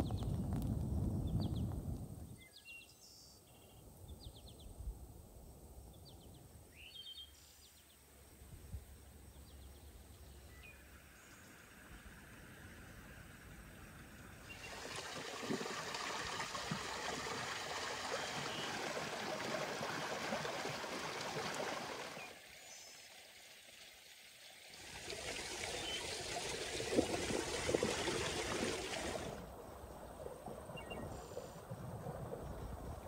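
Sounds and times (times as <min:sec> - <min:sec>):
water pouring and splashing: 0:14.4 - 0:29.5.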